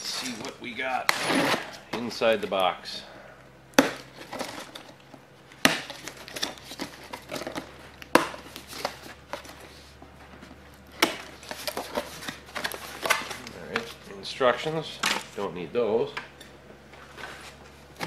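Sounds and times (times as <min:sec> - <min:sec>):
cardboard rustling and scraping: 0:00.0 - 0:02.8, 0:03.9 - 0:05.2, 0:05.8 - 0:14.2, 0:16.9 - 0:18.0.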